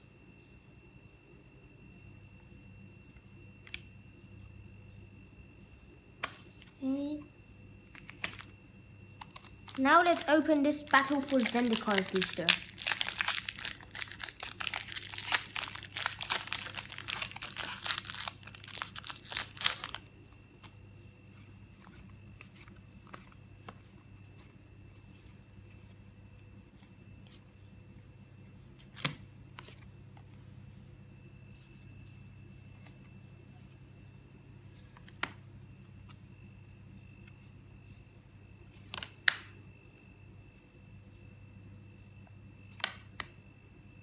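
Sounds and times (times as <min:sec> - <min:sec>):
foil wrapper tearing and crinkling: 0:09.2 - 0:20.0.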